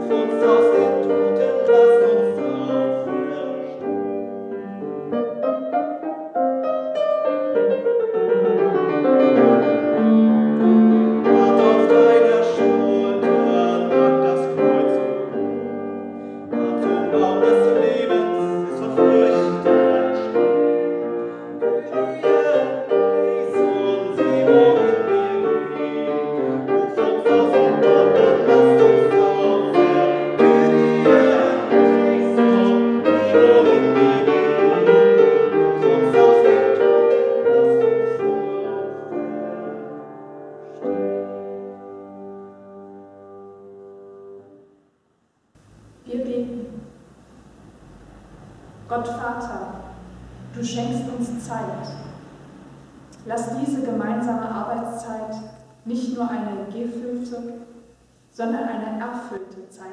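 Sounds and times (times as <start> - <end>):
man singing: 0.0 - 4.3, 10.6 - 39.3
grand piano playing a slow hymn: 0.0 - 44.7.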